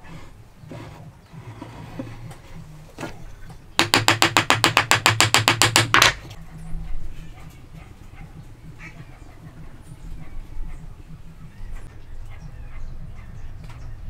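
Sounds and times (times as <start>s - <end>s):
small hammer tapping on wood: 3.8s - 6.3s.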